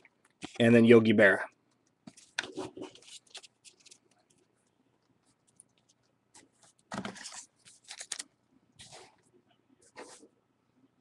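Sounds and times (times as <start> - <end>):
card pack wrapper crinkling: 2.0 - 4.4, 6.6 - 9.1.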